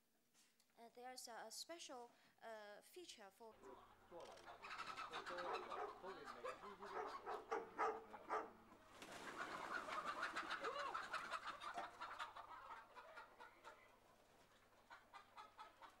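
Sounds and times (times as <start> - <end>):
chickens clucking and chirping: 4.5 - 8.5, 9.1 - 16.0.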